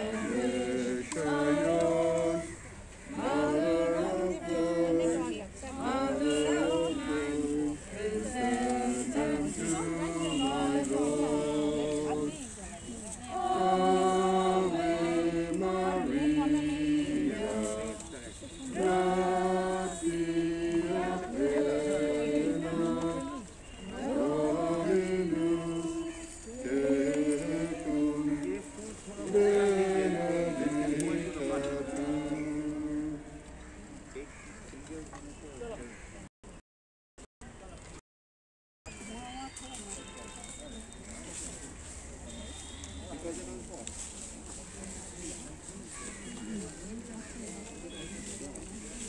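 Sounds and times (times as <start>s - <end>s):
group singing unaccompanied: 0.0s - 33.7s.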